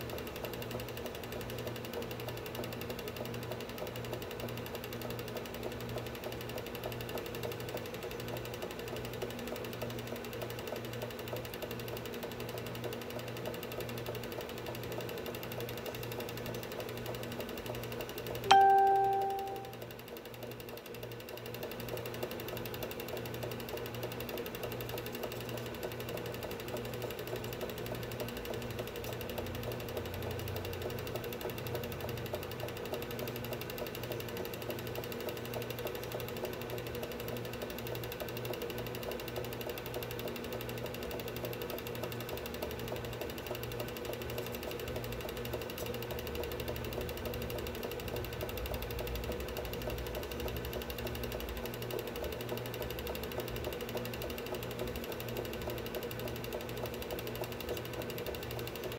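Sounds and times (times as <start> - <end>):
film projector clattering: 21.4 - 58.9.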